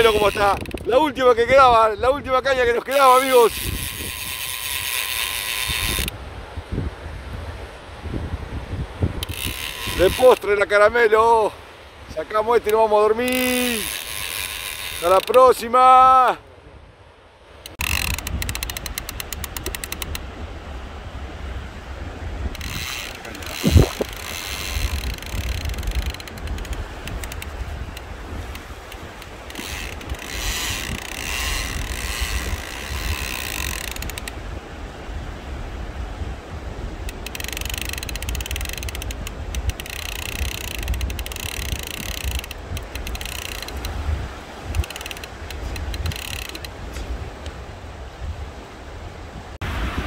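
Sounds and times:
fishing reel rapid clicking: 0.0 - 0.9, 2.9 - 6.2, 9.2 - 10.5, 13.2 - 15.4, 17.7 - 20.2, 22.6 - 34.4, 37.1 - 44.0, 44.7 - 46.8
wind rumbling on microphone: 0.0 - 15.5, 16.5 - 50.0.

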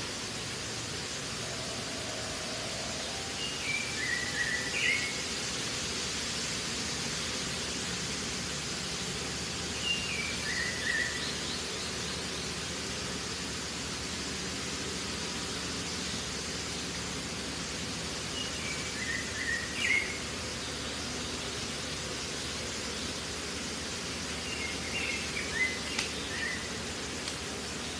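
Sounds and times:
bird calling: 24.5 - 26.8.

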